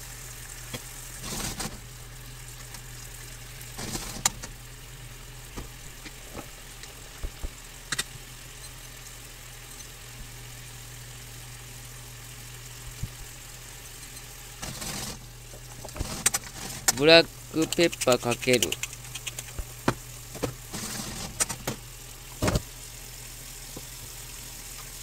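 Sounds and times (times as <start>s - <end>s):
sauce simmering and bubbling: 0.0s - 14.6s, 15.2s - 16.0s, 21.7s - 25.0s
light utensil clicks: 17.6s - 19.6s.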